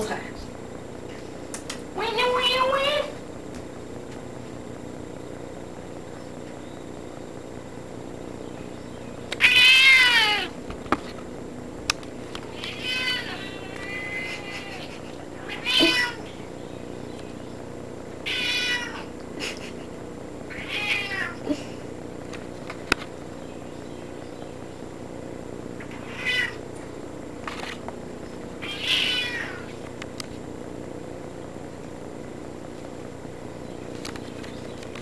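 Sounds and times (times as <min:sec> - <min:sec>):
sharp click: 0:01.5 - 0:01.8
cat meowing: 0:09.4 - 0:10.6, 0:12.5 - 0:16.4, 0:18.3 - 0:19.1, 0:20.5 - 0:21.4, 0:25.8 - 0:26.6, 0:28.6 - 0:29.7.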